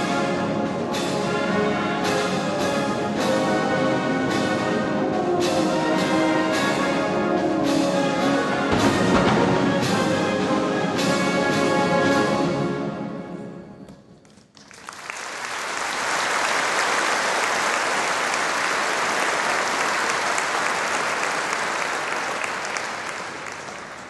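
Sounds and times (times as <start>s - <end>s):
brass band final chord: 8.7s - 11.6s
audience applause: 14.4s - 24.0s.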